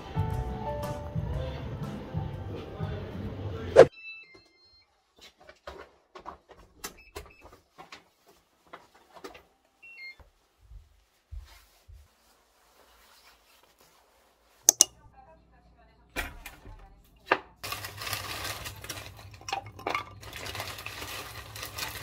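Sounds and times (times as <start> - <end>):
padded jacket rustling: 10.9 - 14.6
paper bag rustling: 17.6 - 19.4, 20.2 - 22.0.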